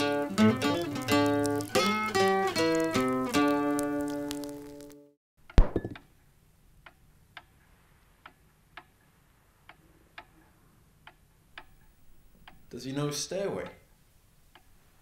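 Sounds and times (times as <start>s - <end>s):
sharp thud: 5.6s - 6.0s.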